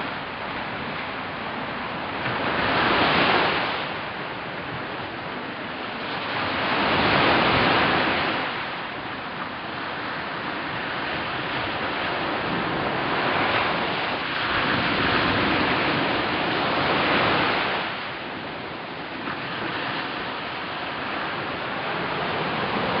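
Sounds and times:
waves breaking on a beach: 0:00.0 - 0:23.0.

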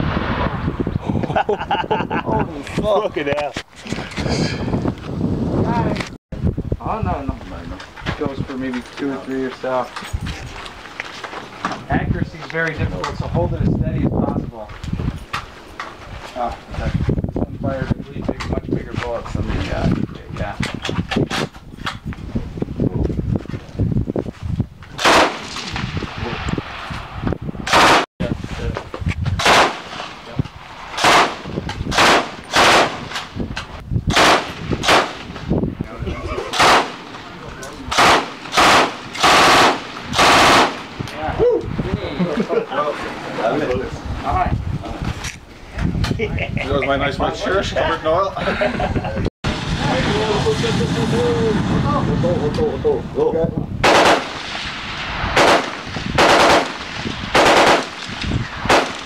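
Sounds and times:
machine gun bursts: 0:38.0 - 0:40.8, 0:55.4 - 0:56.8, 0:57.4 - 0:58.0.

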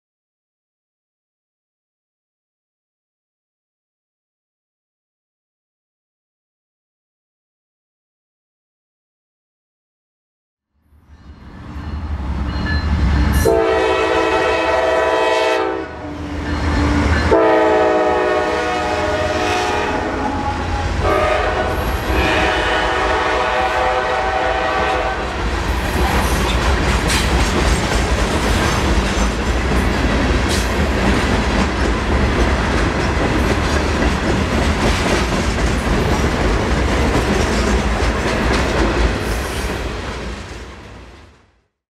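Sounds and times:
diesel locomotive passing: 0:11.0 - 0:41.3
train horn: 0:13.4 - 0:25.4.

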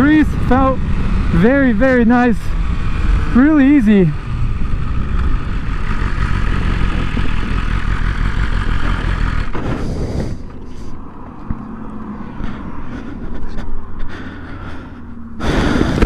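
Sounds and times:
motorcycle engine idling: 0:00.0 - 0:10.9
wind rush over microphone: 0:15.4 - 0:16.0.

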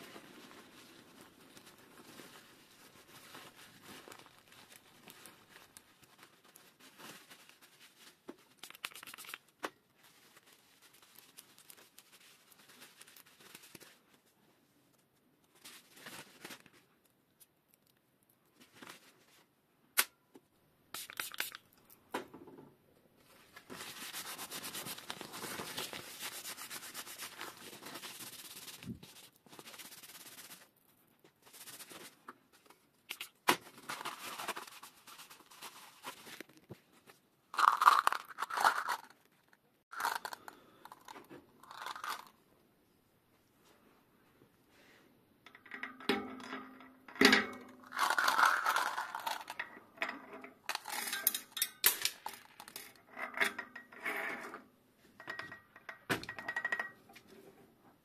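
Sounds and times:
paper towel rustling: 0:00.0 - 0:08.6, 0:23.2 - 0:30.7
metal parts clinking: 0:47.2 - 0:53.7.

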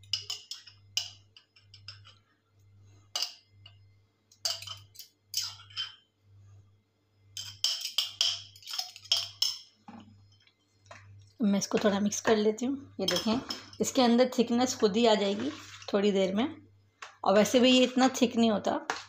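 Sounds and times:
metal spoon clinking in glass jar: 0:00.0 - 0:02.2, 0:04.4 - 0:06.0, 0:07.4 - 0:09.7, 0:13.0 - 0:14.0.

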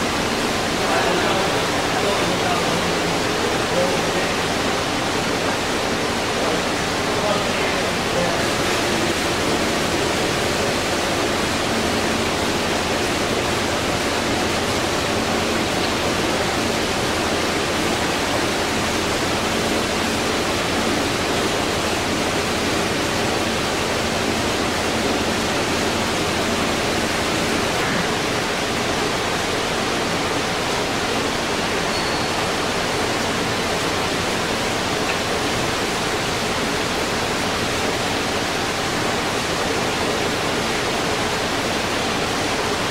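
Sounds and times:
lathe running hum: 0:00.0 - 0:42.9.

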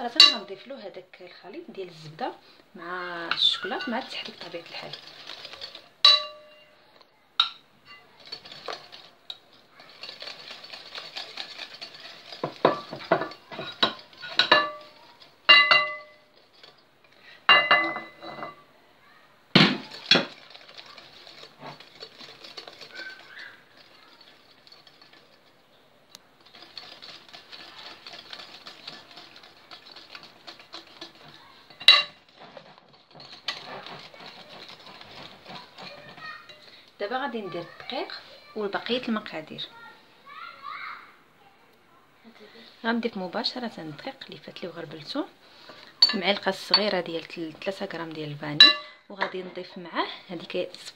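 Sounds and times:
metal clinking against dish: 0:00.2 - 0:00.5, 0:03.3 - 0:06.7, 0:09.8 - 0:16.8, 0:17.5 - 0:18.6, 0:26.4 - 0:36.7, 0:46.0 - 0:47.1, 0:48.5 - 0:49.4
whisk stirring batter: 0:01.6 - 0:06.4, 0:07.9 - 0:17.3, 0:19.8 - 0:39.6, 0:42.9 - 0:50.9.

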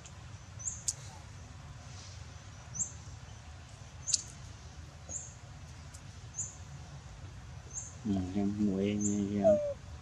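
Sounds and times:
high-pitched animal chirps: 0:09.4 - 0:09.8.

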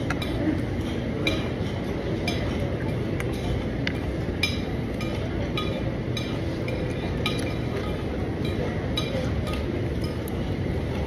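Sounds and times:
busy food court din: 0:00.0 - 0:11.0
cutlery clinking on dishes: 0:00.1 - 0:10.4.

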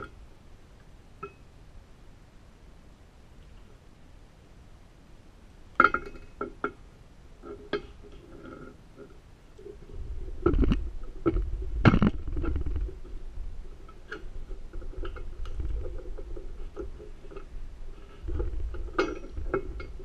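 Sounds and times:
metal clanks: 0:05.8 - 0:06.8, 0:18.1 - 0:20.0.

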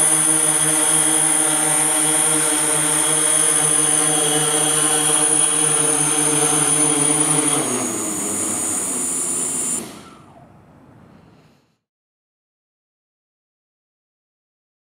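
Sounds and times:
drone propellers whining: 0:00.0 - 0:11.7.

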